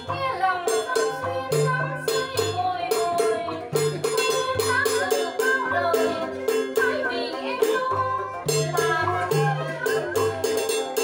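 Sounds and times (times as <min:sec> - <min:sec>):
plucked lute melody: 0:00.0 - 0:11.0.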